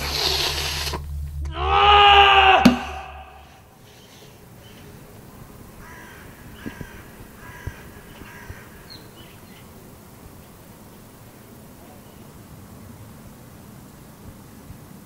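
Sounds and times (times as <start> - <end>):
crow cawing: 1.5 - 5.0, 5.7 - 9.6
faint outdoor hiss: 2.6 - 15.0.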